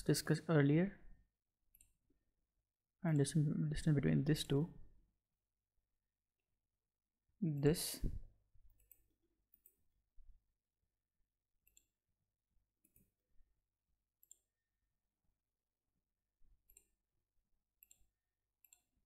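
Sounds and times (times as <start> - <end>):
computer mouse clicks: 11.6 - 12.0, 14.2 - 14.5, 16.6 - 17.0, 17.8 - 18.9.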